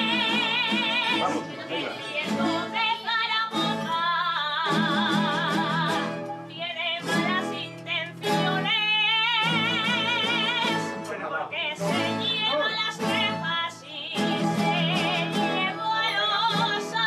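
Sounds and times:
plucked guitars: 0:00.0 - 0:17.0
woman singing with vibrato: 0:00.0 - 0:17.0.

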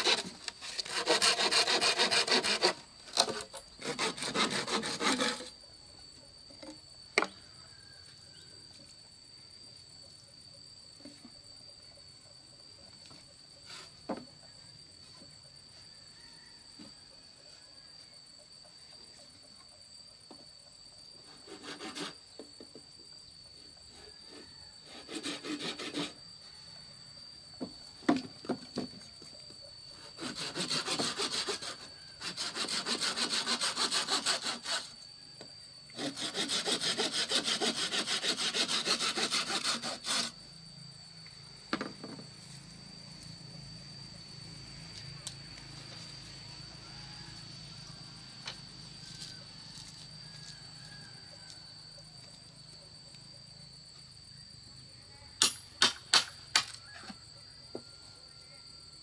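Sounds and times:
saw cutting bamboo: 0:00.0 - 0:05.6, 0:21.3 - 0:22.2, 0:23.9 - 0:26.2, 0:30.0 - 0:35.0, 0:35.9 - 0:40.4
hollow knocks of bamboo poles: 0:14.1 - 0:14.3, 0:27.6 - 0:29.0, 0:41.7 - 0:42.2.

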